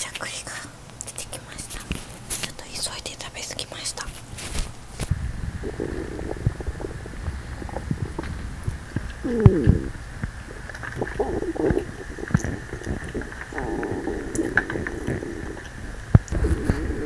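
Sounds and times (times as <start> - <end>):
stomach rumbling and gurgling: 4.4 - 17.0.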